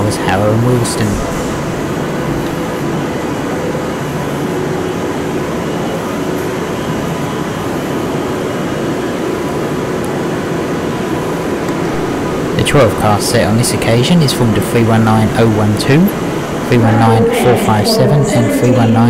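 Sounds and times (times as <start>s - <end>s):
electric train hum and hiss: 0.0s - 19.0s
faint steady tones: 11.7s - 19.0s.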